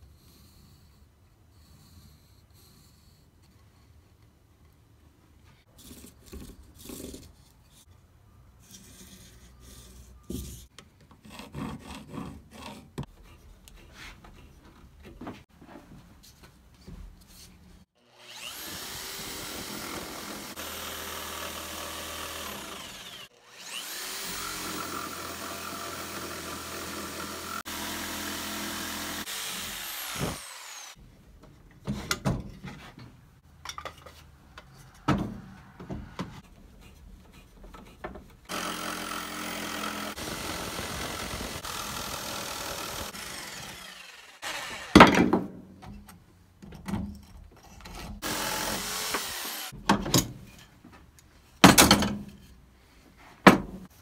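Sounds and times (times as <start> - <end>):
jigsaw cutting wood: 18.0 - 31.0, 38.5 - 45.2, 48.2 - 49.8.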